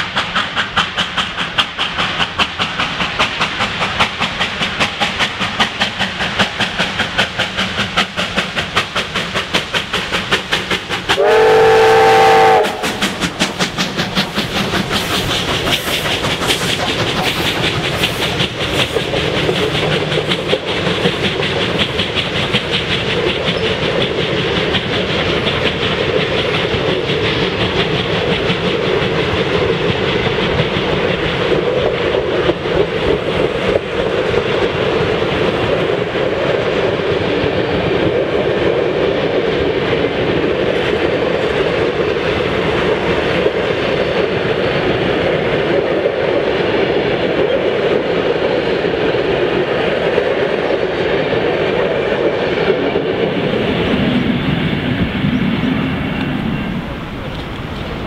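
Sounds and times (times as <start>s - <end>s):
steam locomotive chuffing: 0.0s - 58.0s
train wheels clattering: 0.0s - 58.0s
multi-tone steam whistle: 11.2s - 13.2s.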